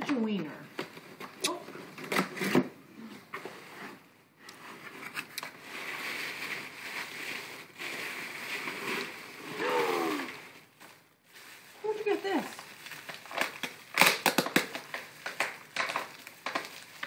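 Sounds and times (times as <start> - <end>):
plastic wrapping crinkling: 4.5 - 17.0.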